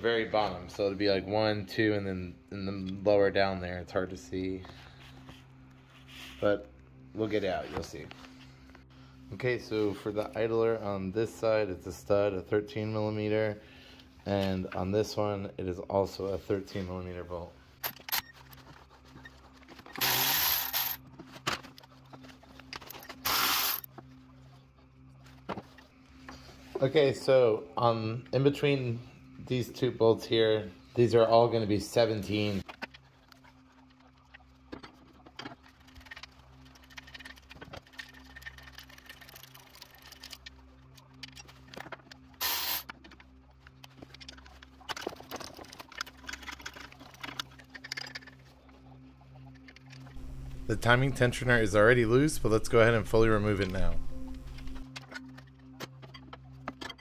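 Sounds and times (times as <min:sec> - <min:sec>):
steady low hum: 0:00.0 - 0:45.0, 0:45.9 - 0:56.8
cordless power tool spinning bolts: 0:19.9 - 0:21.0, 0:23.2 - 0:23.9, 0:42.4 - 0:42.8
ratcheting wrench clicking: 0:20.0 - 0:21.0, 0:23.3 - 0:23.9.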